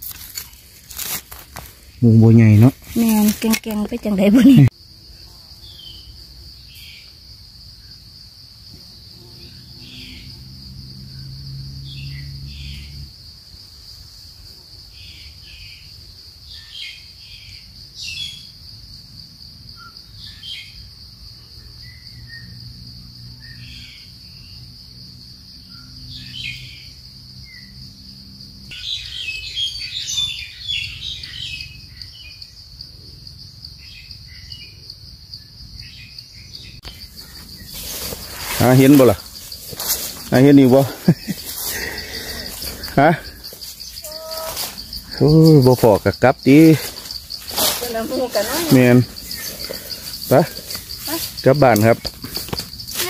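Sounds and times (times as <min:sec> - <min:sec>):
high-pitched insect drone: 0:00.0 - 0:14.5, 0:19.7 - 0:53.0
bird chirps: 0:28.7 - 0:32.4.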